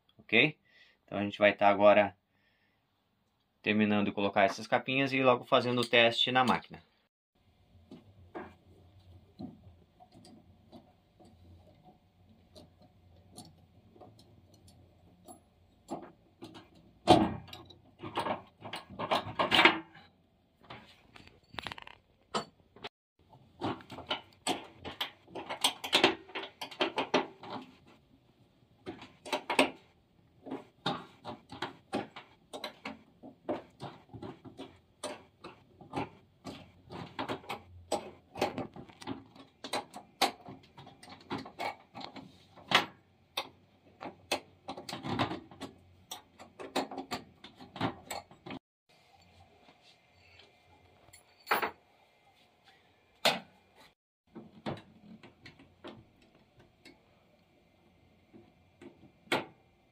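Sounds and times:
metal bolts and caps rattling: 12.5s - 20.1s, 20.7s - 22.9s, 23.6s - 27.8s.

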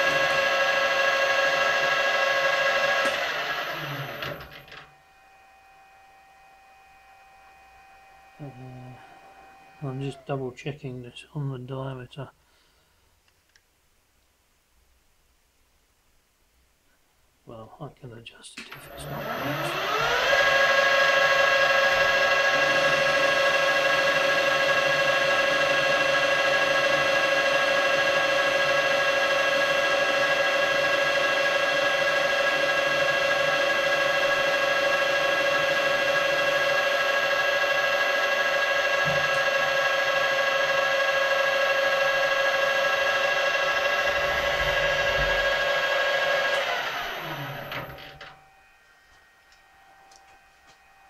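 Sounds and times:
metal lathe whining: 0.0s - 10.7s, 18.7s - 51.0s.

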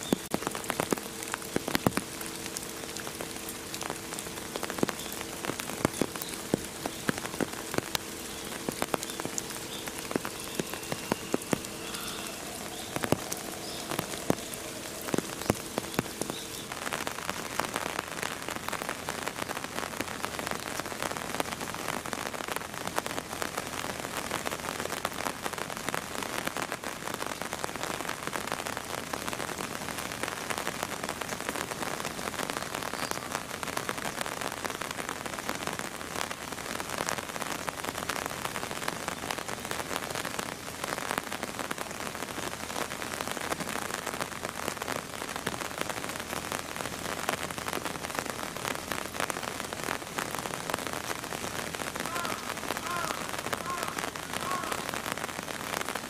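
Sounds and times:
rain drops on hard surface: 0.0s - 56.0s.

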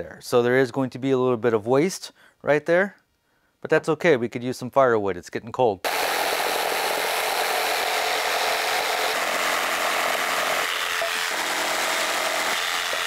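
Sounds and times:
jigsaw sawing through board: 5.9s - 13.0s.

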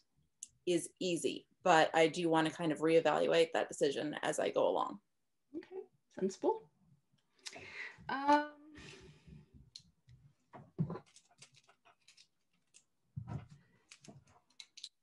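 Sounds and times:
soft rustles and clicks: 10.5s - 15.0s.

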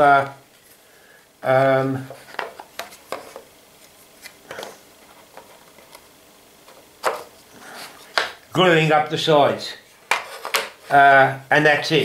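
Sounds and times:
wooden panels clicking and knocking: 10.1s - 10.8s.

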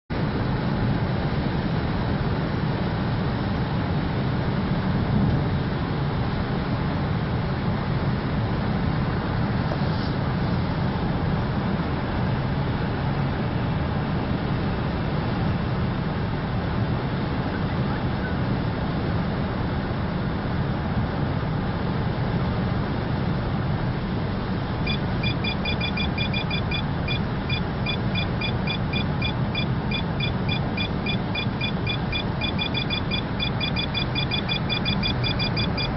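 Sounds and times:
car road and engine noise: 0.1s - 35.9s
radar detector beeping: 24.8s - 35.9s.

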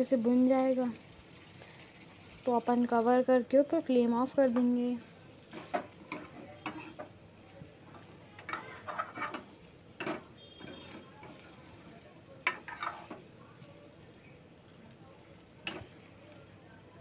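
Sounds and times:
faint sizzle: 0.0s - 17.0s
spoon scraping a pan: 5.5s - 7.2s, 7.9s - 13.3s, 15.6s - 16.2s.

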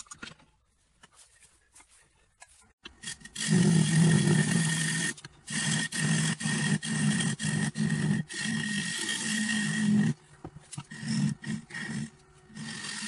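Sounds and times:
gouge rasping into spinning wood: 3.0s - 13.0s
wood lathe hum: 3.0s - 13.0s.

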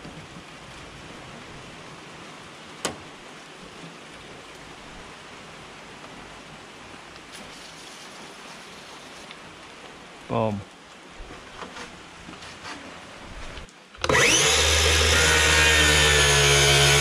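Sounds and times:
rain falling: 0.0s - 14.0s.

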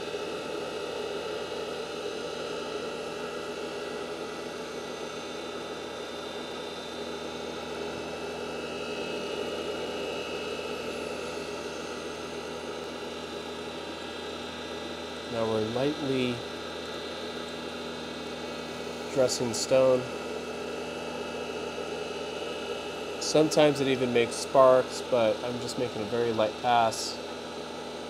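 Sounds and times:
motor hum: 0.0s - 28.0s.

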